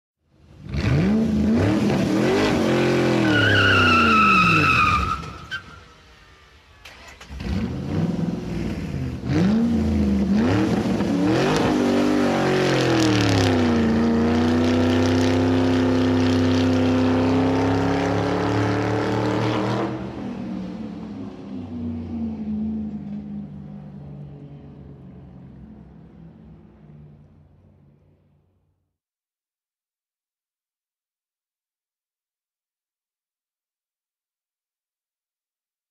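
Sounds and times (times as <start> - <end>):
car engine accelerating through gears: 0.6 - 5.2, 6.8 - 25.9
tire squeal: 2.3 - 7.2.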